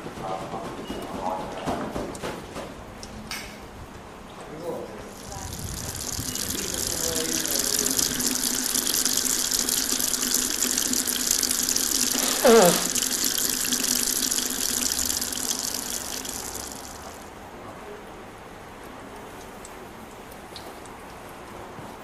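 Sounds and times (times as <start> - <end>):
rushing gushing water hiss: 5.1 - 17.3.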